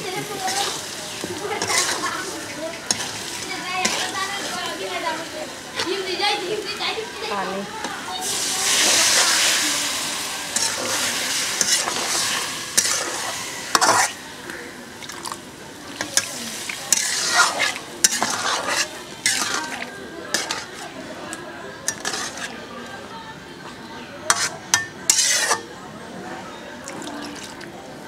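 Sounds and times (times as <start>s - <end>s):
metal spatula scraping wok: 0.0s - 6.1s, 8.2s - 14.4s, 15.9s - 21.1s, 21.8s - 22.7s, 24.3s - 25.8s
water sizzling in hot wok: 0.0s - 21.0s, 21.9s - 22.5s, 24.3s - 25.7s.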